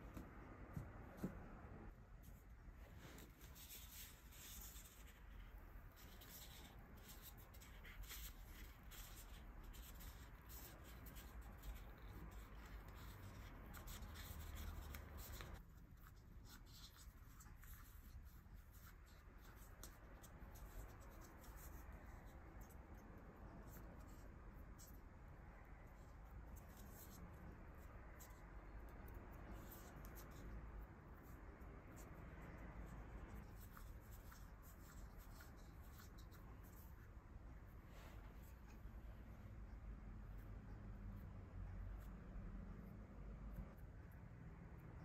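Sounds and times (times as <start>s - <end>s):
fingertips rustling dough in paper cups: 0.0s - 39.0s.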